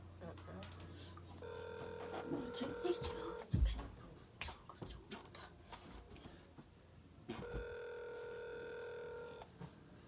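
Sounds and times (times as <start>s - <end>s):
telephone ringback tone: 1.4s - 3.4s, 7.3s - 9.5s.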